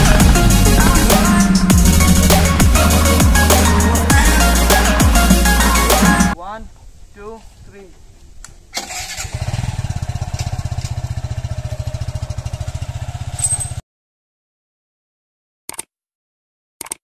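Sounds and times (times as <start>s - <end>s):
motorcycle engine running: 0.0s - 4.4s, 9.2s - 13.8s.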